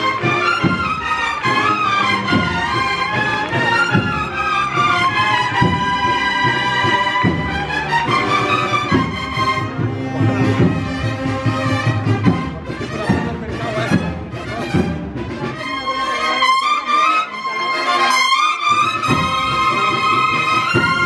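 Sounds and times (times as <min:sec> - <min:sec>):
brass band playing a march: 0:00.0 - 0:21.0
trumpets: 0:00.0 - 0:21.0.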